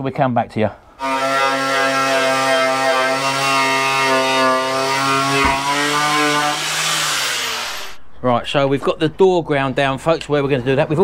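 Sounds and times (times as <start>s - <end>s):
angle grinder motor whine: 1.0s - 8.0s
single knock: 5.4s - 5.7s.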